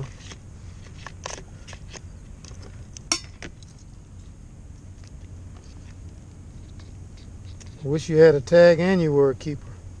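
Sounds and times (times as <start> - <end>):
low steady rumble: 0.0 - 10.0
sharp metallic clink: 3.1 - 3.4.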